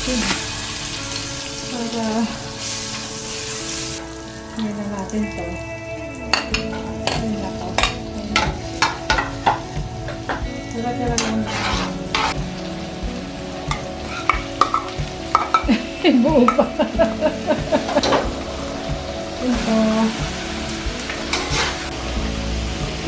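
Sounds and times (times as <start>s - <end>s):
garlic and onion sizzling in oil: 0.0s - 23.0s
metal ladle scraping a pan: 11.2s - 12.4s, 13.7s - 15.6s, 21.0s - 22.0s.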